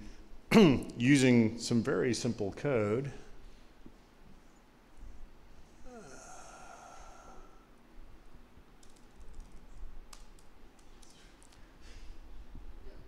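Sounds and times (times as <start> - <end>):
breathy sigh: 5.8 - 7.7
laptop keyboard keystrokes: 8.8 - 11.6.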